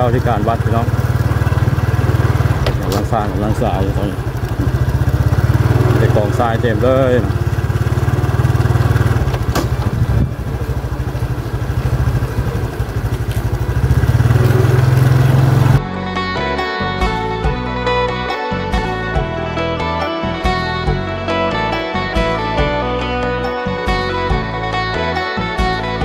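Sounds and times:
background music: 0:00.0 - 0:09.2, 0:14.4 - 0:26.0
small motorcycle engine running: 0:00.0 - 0:15.8.

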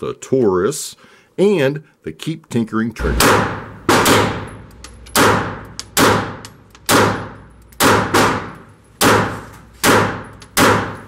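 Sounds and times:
pistol shots echoing indoors: 0:03.0 - 0:11.0.

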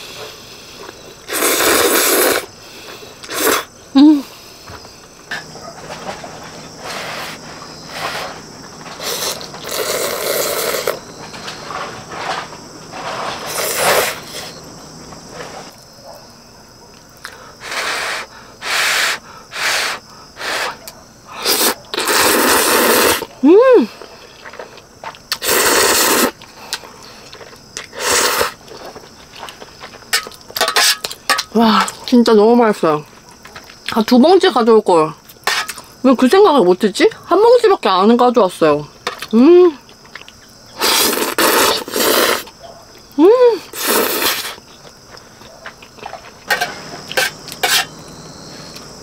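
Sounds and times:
person slurping noodles: 0:01.3 - 0:02.5, 0:03.2 - 0:03.7, 0:09.0 - 0:11.0, 0:13.5 - 0:14.6, 0:21.4 - 0:23.3, 0:25.3 - 0:26.4, 0:27.9 - 0:28.6, 0:40.8 - 0:42.5, 0:43.7 - 0:44.6.

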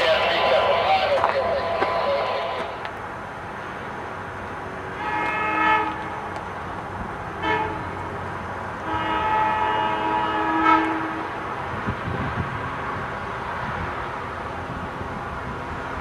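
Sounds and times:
distant train running: 0:00.0 - 0:16.0
train horn blasts: 0:05.0 - 0:06.2, 0:07.4 - 0:07.9, 0:08.8 - 0:11.3.

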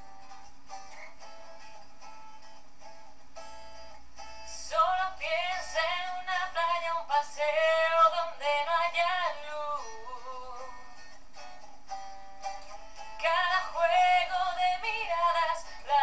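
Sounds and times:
woman singing wordless vocal: 0:04.5 - 0:10.8, 0:13.2 - 0:16.0.

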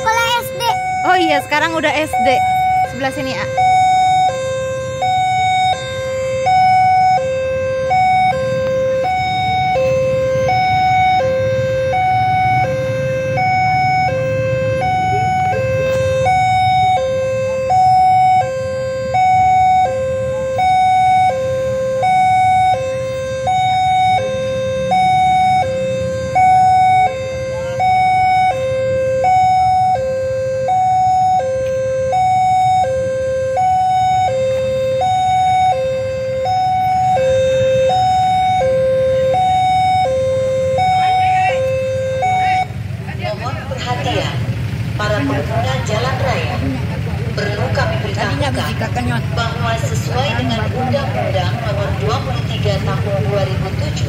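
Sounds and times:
level crossing two-tone alarm: 0:00.0 - 0:42.8.

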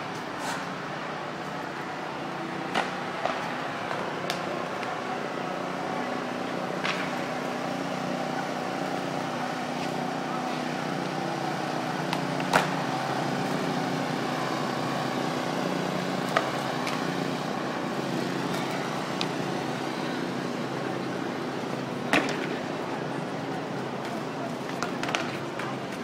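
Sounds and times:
skateboard wheels rolling on concrete: 0:00.0 - 0:26.0
skateboard clacking over joints: 0:24.1 - 0:26.0.

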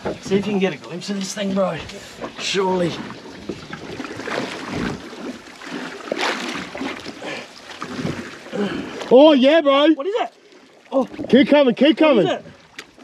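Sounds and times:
water lapping at boat hull: 0:00.0 - 0:13.0
wind on microphone: 0:03.0 - 0:05.1.

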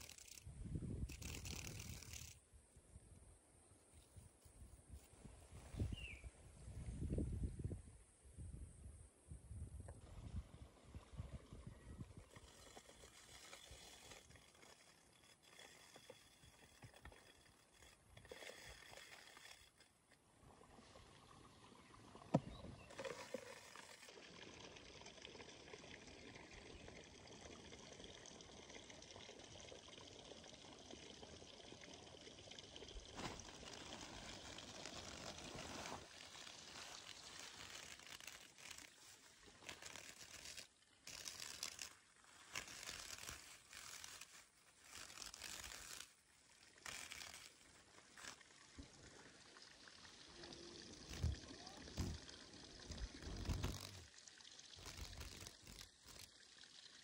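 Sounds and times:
water trickling: 0:10.4 - 0:57.0
plastic bag crinkling: 0:33.2 - 0:46.2, 0:54.8 - 0:56.3.

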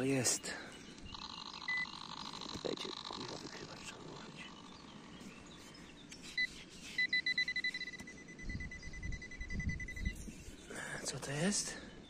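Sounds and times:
metal detector beeps: 0:01.1 - 0:03.0, 0:06.3 - 0:10.3.

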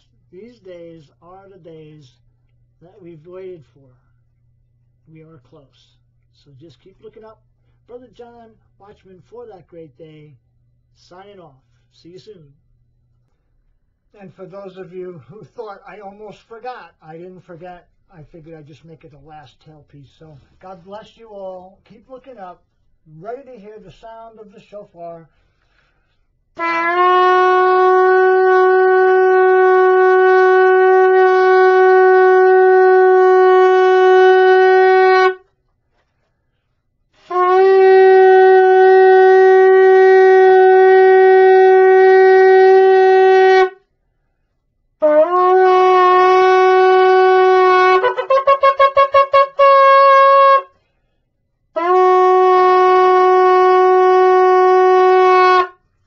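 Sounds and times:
shofar blasts: 0:26.5 - 0:35.6, 0:37.1 - 0:43.9, 0:45.0 - 0:50.8, 0:51.7 - 0:55.9.

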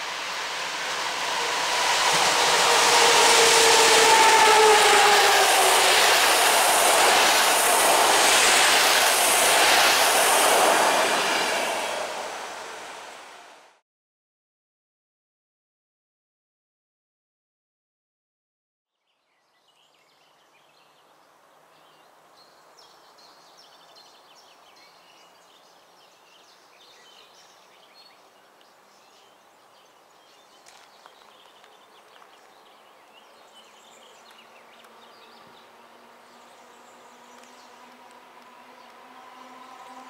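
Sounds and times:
electric locomotive hum: 0:00.0 - 0:13.8, 0:34.9 - 0:40.0.

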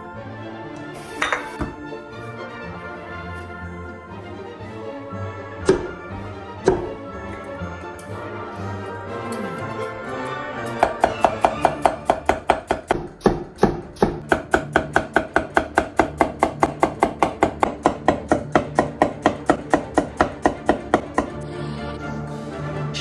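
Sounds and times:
background music: 0:00.0 - 0:23.0
cleaver chopping on wooden block: 0:05.6 - 0:06.0, 0:06.6 - 0:07.0, 0:10.8 - 0:21.3.

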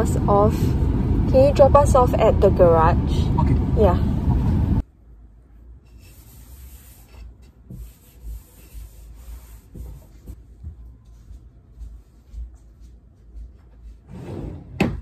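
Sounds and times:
wipe scuffing on wood: 0:06.0 - 0:14.0.

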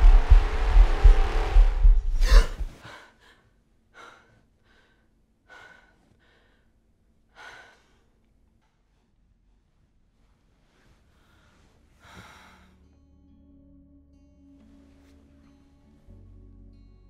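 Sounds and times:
deep rumble with whoosh: 0:00.0 - 0:02.8
woman gasping: 0:02.1 - 0:06.7, 0:12.0 - 0:12.7.

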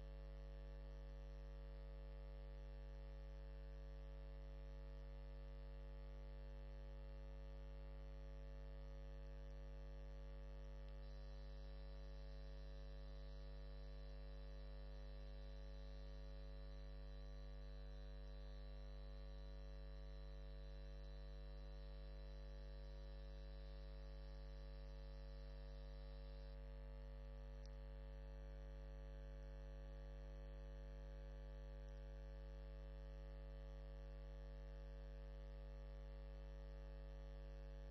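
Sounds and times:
electrical mains hum: 0:09.2 - 0:26.6
faint high whine: 0:09.3 - 0:26.7.

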